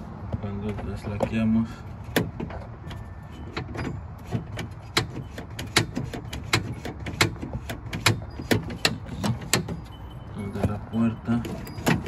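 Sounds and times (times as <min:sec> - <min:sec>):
car door lock clicking: 0:02.1 - 0:10.0.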